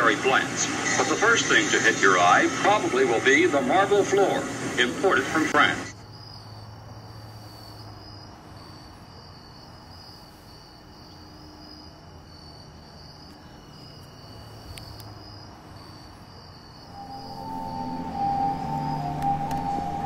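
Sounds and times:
insects chirping: 0.0 - 20.0
low hum: 16.9 - 20.0.

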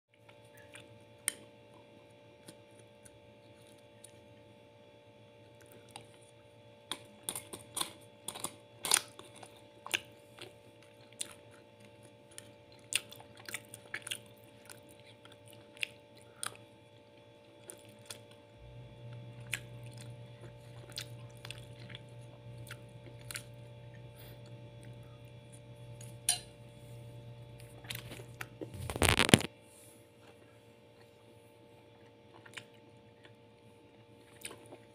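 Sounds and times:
chewing: 0.1 - 4.3, 5.4 - 26.2, 27.6 - 29.3, 30.2 - 34.9
faint steady hum: 0.1 - 34.9
low hum: 18.4 - 32.2.

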